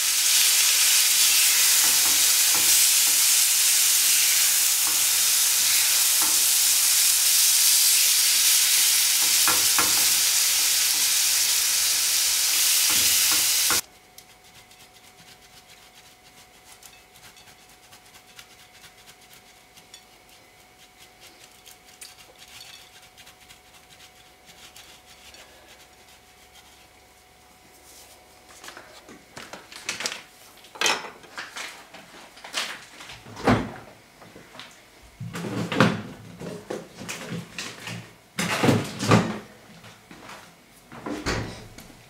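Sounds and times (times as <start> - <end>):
cheese grating on metal grater: 12.9 - 27.0
kitchen things clattering: 28.7 - 31.9.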